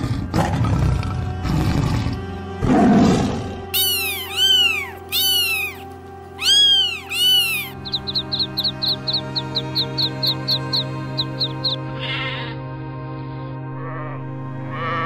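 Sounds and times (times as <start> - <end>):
background music: 0.0 - 15.0
cat meowing: 3.8 - 5.8, 6.4 - 7.8.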